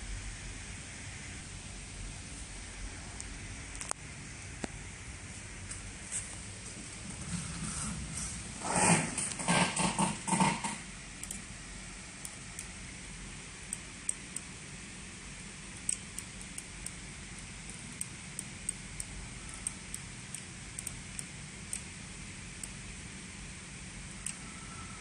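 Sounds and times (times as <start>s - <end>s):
steady low hum: 0.0s - 25.0s
computer mouse clicks: 9.2s - 11.5s, 15.8s - 21.9s, 24.2s - 24.5s.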